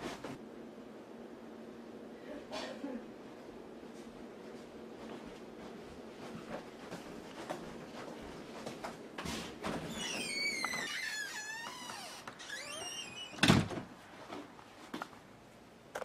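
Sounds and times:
door creaking open: 0:09.6 - 0:13.9
door banging shut: 0:12.0 - 0:13.9.

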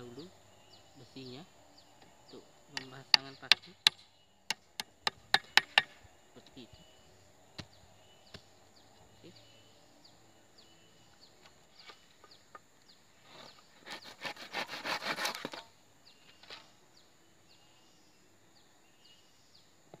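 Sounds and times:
high insect drone: 0:00.0 - 0:13.6
birds chirping: 0:00.0 - 0:14.4
tool knocking on wood: 0:02.8 - 0:05.9
handsaw cutting wood: 0:13.8 - 0:15.6.

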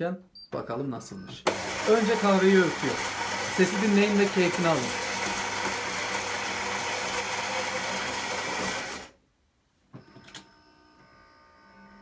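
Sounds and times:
coffee grinder grinding beans: 0:01.5 - 0:09.2.

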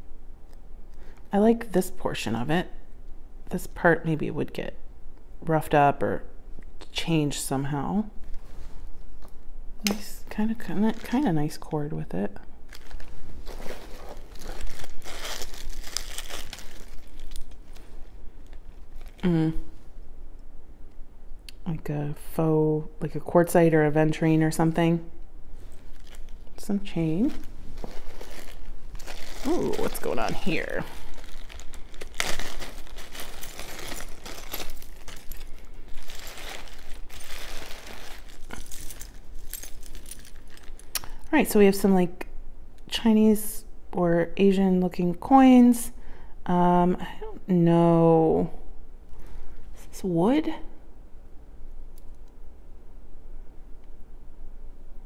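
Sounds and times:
plastic bags crinkling: 0:10.3 - 0:11.7, 0:12.7 - 0:19.4, 0:25.6 - 0:41.3
beads and chains clicking: 0:28.2 - 0:41.0.

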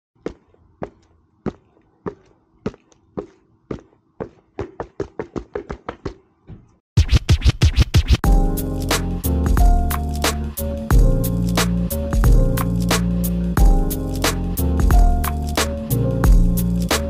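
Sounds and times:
loud music with record scratching: 0:07.0 - 0:08.3.

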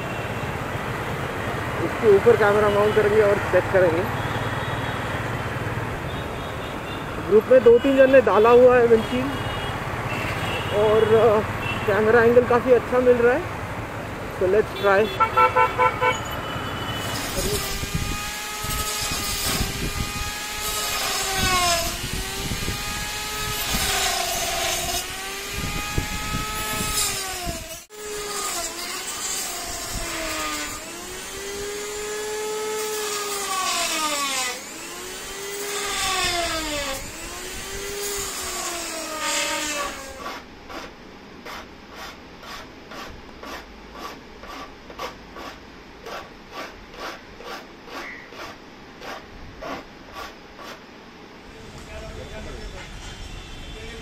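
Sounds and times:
rotary tool cutting plastic: 0:17.0 - 0:50.8.

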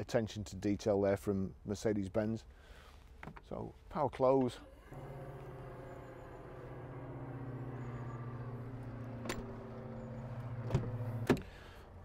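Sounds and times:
tailgate motor whirring: 0:04.6 - 0:11.8.

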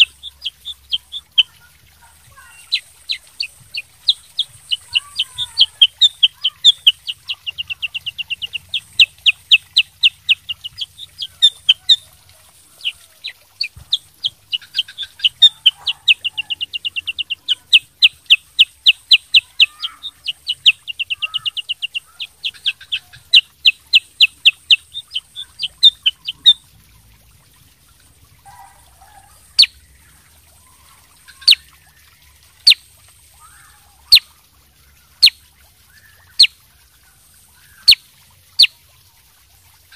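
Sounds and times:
bird trilling: 0:00.0 - 0:01.6, 0:02.3 - 0:26.6.

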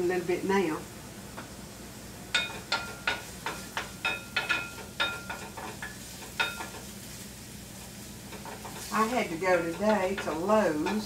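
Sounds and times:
faint sizzle: 0:00.0 - 0:11.0
utensil tapping metal skillet: 0:02.3 - 0:07.0, 0:08.2 - 0:11.0.

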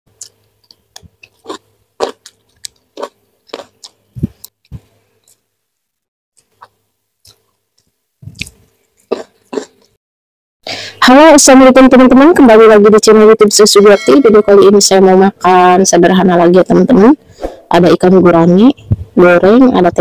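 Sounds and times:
chewing crunchy vegetables: 0:00.1 - 0:04.6, 0:06.4 - 0:10.0.

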